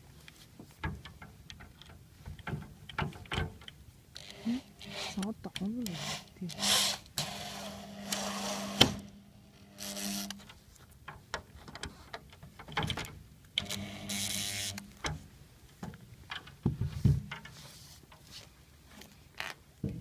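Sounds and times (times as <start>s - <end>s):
chair parts clicking and knocking: 0.6s - 5.9s
power screwdriver driving screws: 4.2s - 5.2s, 5.9s - 10.4s.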